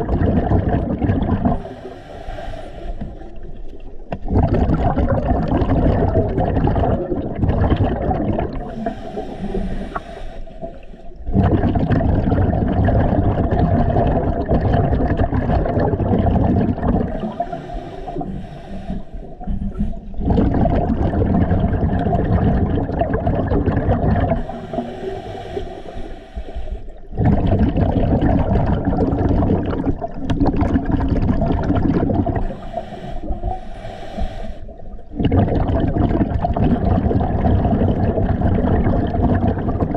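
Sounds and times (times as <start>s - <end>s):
exhaled bubbles gurgling underwater: 0.0s - 39.9s
regulator hissing inhalations: 1.6s - 3.3s, 8.7s - 11.2s, 17.2s - 20.0s, 24.4s - 27.1s, 32.4s - 34.9s.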